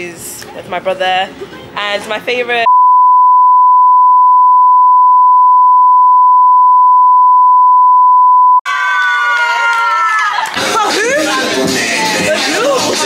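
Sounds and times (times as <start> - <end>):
censor bleep: 2.7 - 8.6.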